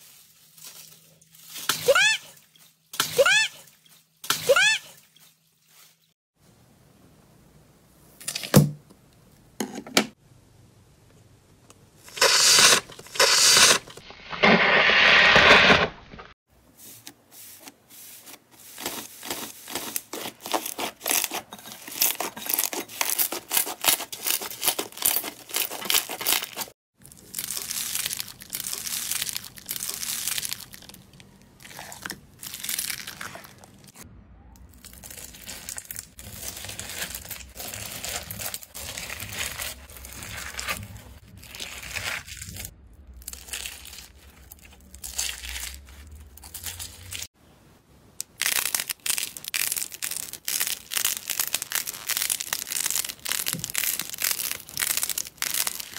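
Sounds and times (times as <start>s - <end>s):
hands squeezing clay and slime: 17.6s - 34.0s, 34.7s - 47.3s, 48.2s - 55.9s
slime crackling and popping: 48.2s - 55.9s.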